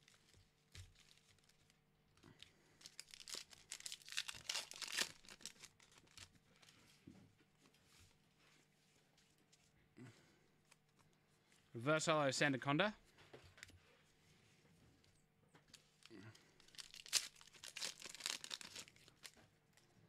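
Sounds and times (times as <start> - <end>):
foil wrapper tearing and crinkling: 0.0 - 1.8, 2.4 - 6.4, 15.7 - 19.4.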